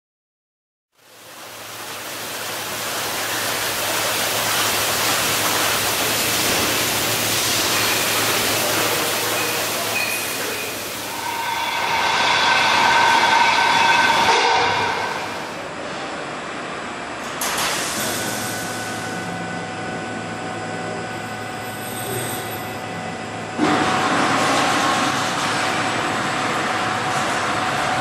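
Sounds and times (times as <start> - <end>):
machinery noise: 2.2 - 16.3
low hum: 10.8 - 16.0.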